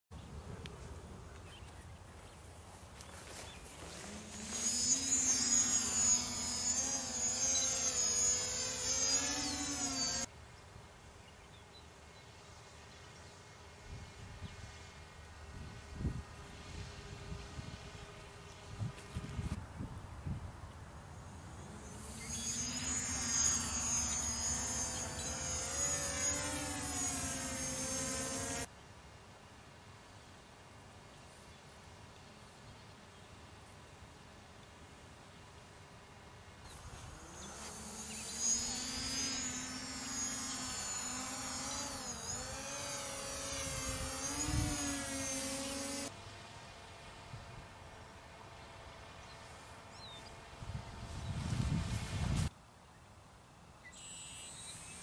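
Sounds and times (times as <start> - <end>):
faint outdoor background: 0.1 - 55.0
drone propellers whining: 3.3 - 10.3, 21.2 - 28.7, 36.7 - 46.2.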